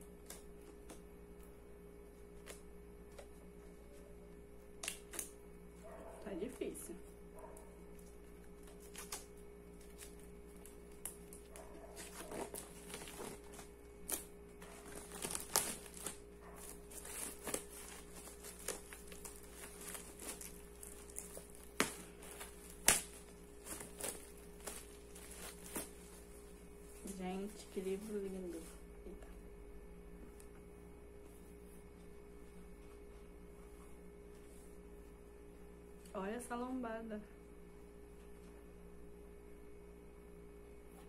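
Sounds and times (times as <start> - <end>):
plastic shrink wrap crinkling: 7.9 - 28.8.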